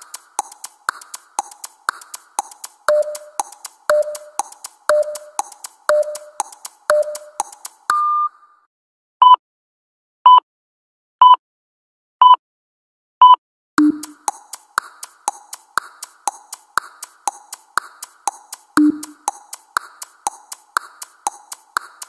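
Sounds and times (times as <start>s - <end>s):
ticking electronic beat: 0.0s - 8.0s, 13.8s - 22.0s
held beep: 2.9s - 8.3s, 13.2s - 14.2s, 18.8s - 19.2s
short countdown beeps: 2.9s - 8.3s, 13.2s - 14.4s, 18.8s - 19.3s.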